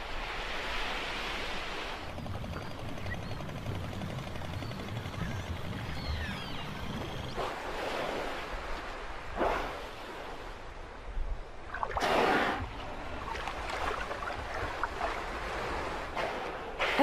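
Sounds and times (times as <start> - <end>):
sea water washing: 11.6 - 17.0
short rushing bursts of water: 11.7 - 12.8.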